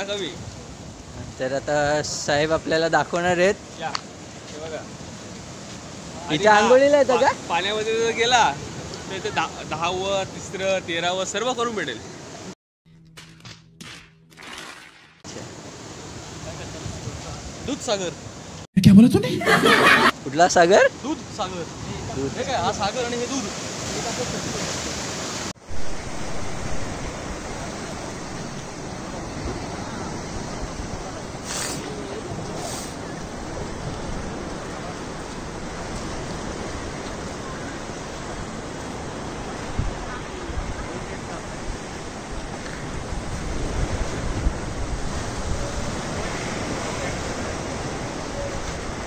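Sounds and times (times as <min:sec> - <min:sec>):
sea water splashing: 0:14.3 - 0:16.8
surf washing against rocks: 0:21.4 - 0:49.0
wind on microphone: 0:25.6 - 0:49.0.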